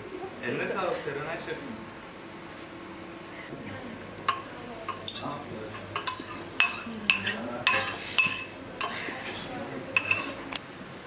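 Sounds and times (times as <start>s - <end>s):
metal spoon clinking steel bowl: 4.3s - 9.0s, 10.0s - 10.4s.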